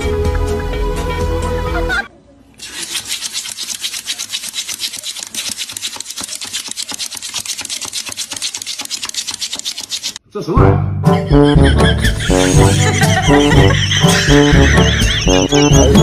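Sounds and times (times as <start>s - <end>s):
background music: 0.0s - 2.1s, 10.3s - 16.0s
dog claws scratching tabletop: 2.6s - 10.2s.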